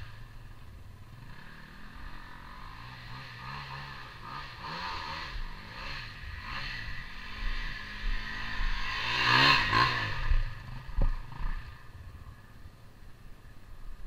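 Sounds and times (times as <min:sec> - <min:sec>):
motorcycle revving past: 0:00.0 - 0:12.5.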